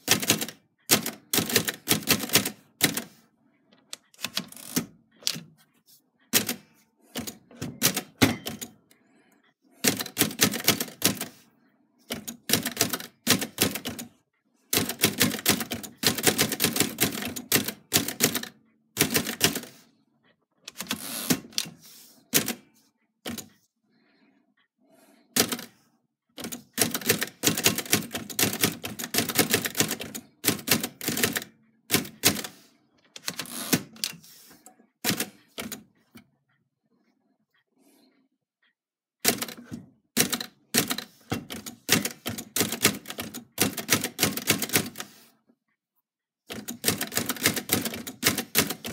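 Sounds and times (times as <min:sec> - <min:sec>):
typewriter key strikes: 0:07.2 - 0:08.7.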